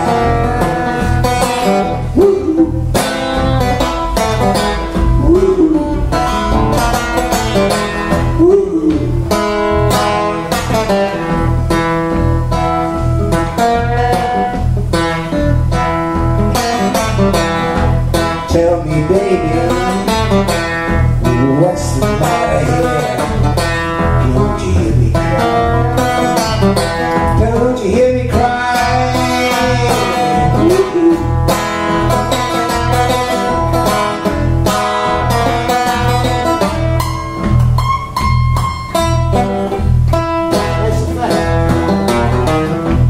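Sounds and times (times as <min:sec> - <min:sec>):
acoustic guitars strumming blues: 0:00.0 - 0:43.0
harmonica bending melodic lines: 0:25.1 - 0:27.6, 0:28.8 - 0:40.5.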